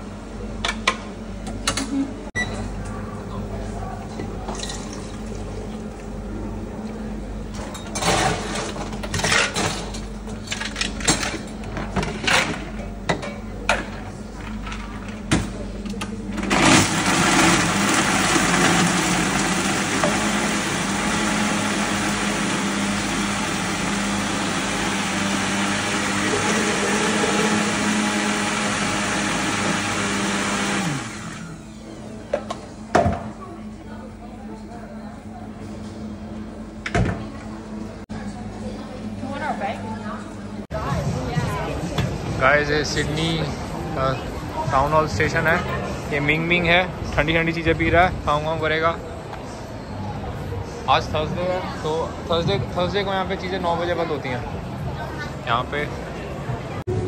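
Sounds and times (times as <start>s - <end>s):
blender running: 16.5s - 31.7s.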